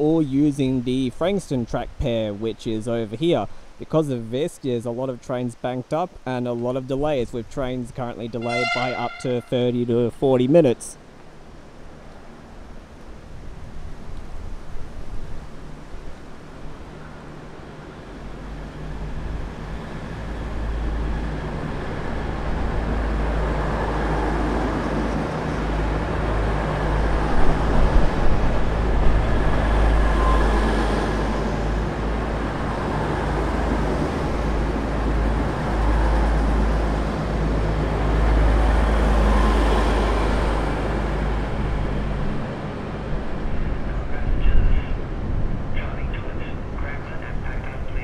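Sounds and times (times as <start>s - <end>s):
diesel engines droning: 0.0s - 48.0s
wheel and rail rumble: 6.9s - 48.0s.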